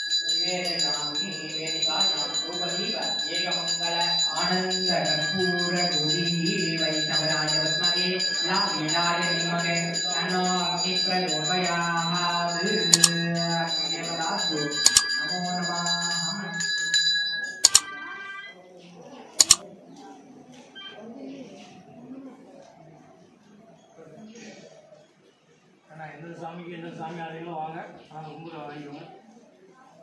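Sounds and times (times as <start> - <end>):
small hand bell ringing: 0.0 - 18.4
chanting over loudspeaker: 0.3 - 16.8
sharp clicks: 12.9 - 13.2, 14.8 - 15.1, 17.6 - 17.9, 19.4 - 19.6.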